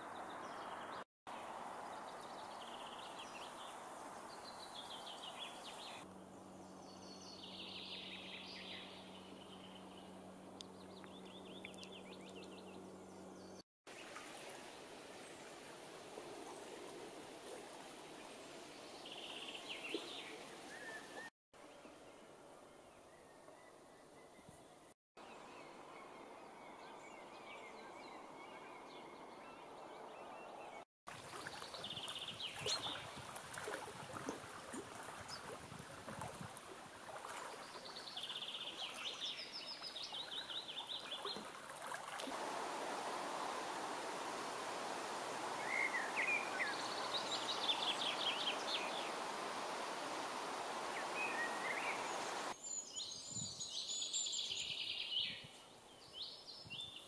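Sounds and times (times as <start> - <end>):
steady background hiss: 42.2 - 56.5
songbird trills and chirps: 45.5 - 57.0.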